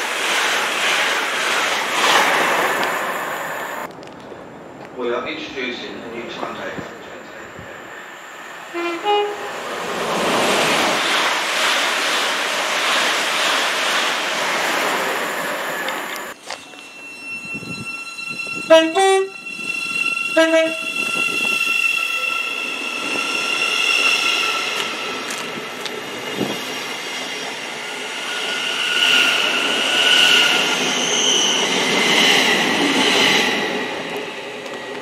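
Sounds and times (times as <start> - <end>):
electric train whine: 6.2 - 35.0
train two-tone horn blasts: 8.7 - 9.6, 18.6 - 19.6, 20.2 - 22.3.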